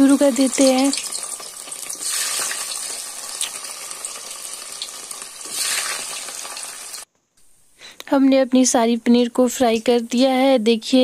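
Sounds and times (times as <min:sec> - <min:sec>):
food frying in hot oil: 0:00.0 - 0:07.1.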